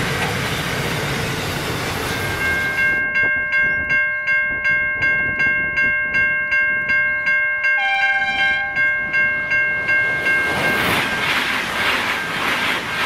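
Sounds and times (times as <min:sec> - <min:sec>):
train rumble: 0:00.0 - 0:07.0, 0:07.8 - 0:13.0
level crossing bell ringing: 0:02.1 - 0:11.2
train horn blast: 0:07.8 - 0:08.9.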